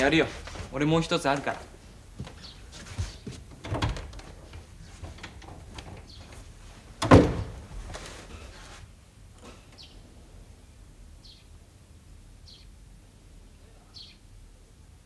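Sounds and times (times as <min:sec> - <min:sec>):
loud thump: 0:07.0 - 0:07.9
faint bird chirps: 0:11.2 - 0:11.5, 0:12.4 - 0:12.8, 0:13.6 - 0:14.3.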